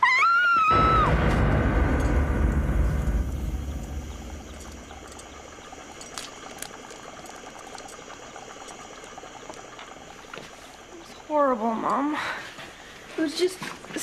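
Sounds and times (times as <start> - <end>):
liquid bubbling in a flask: 4.5 - 12.1.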